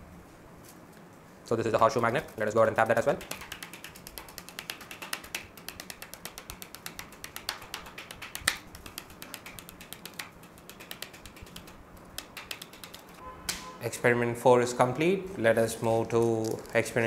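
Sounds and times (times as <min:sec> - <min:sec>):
fingertip tapping on cardboard: 0:03.1 - 0:13.0.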